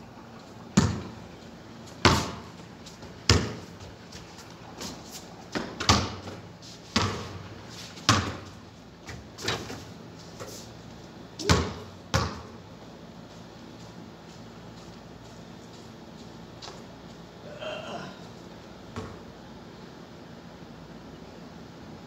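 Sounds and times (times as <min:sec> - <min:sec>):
basketball bouncing on concrete: 0:00.8 - 0:01.2, 0:02.0 - 0:03.9, 0:05.5 - 0:09.7, 0:11.4 - 0:12.6, 0:18.9 - 0:19.2
basketball striking rim and backboard: 0:00.8 - 0:01.2, 0:02.0 - 0:02.5, 0:03.3 - 0:03.6, 0:05.6 - 0:06.4, 0:07.0 - 0:07.4, 0:08.1 - 0:08.5, 0:11.4 - 0:12.6.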